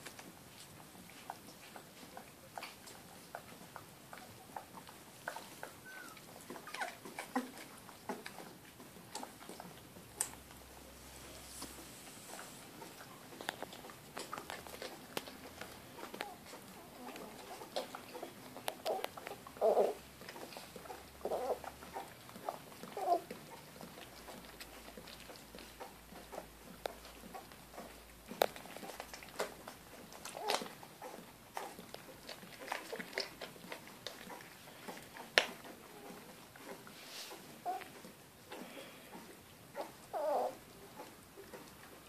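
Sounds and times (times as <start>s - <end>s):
puppies squeaking and whimpering: 4.2s - 9.8s, 12.3s - 28.0s, 28.6s - 41.7s.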